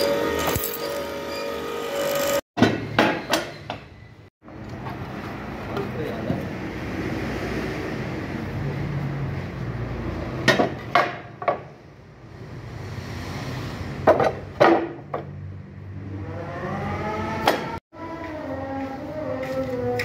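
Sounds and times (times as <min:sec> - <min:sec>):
wooden boards knocking: 0:14.0 - 0:15.3.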